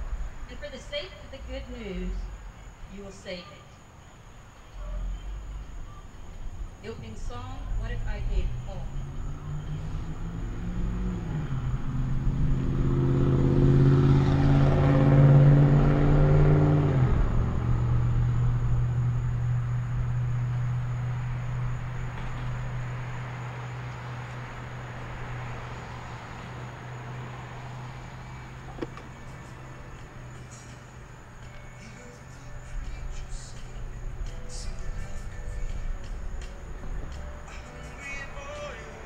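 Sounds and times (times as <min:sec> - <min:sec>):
motor vehicle passing by: 0:04.8 - 0:39.0.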